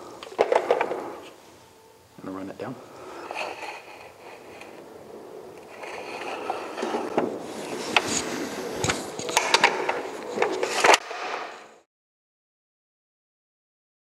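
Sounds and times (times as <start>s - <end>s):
metal scraping on metal: 2.9s - 11.0s.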